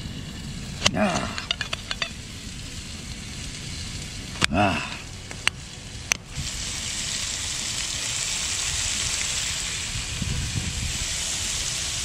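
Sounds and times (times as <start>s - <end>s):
seafood sizzling in a frying pan: 0.0s - 12.0s.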